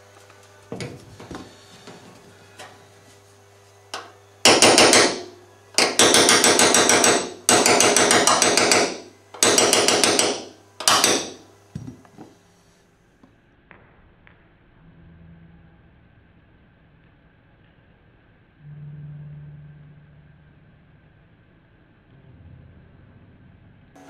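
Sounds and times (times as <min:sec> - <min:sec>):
hammer tapping punch into metal: 0:04.0 - 0:11.4.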